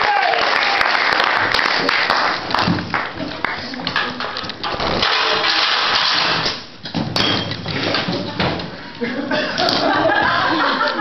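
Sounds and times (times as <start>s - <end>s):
audience applause: 0.0s - 3.2s.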